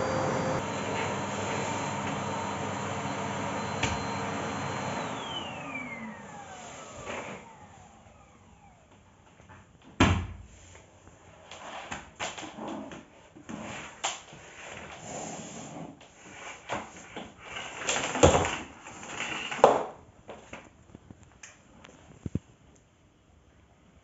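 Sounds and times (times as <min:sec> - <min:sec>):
vacuum cleaner parts knocking: 0:00.6 - 0:05.2.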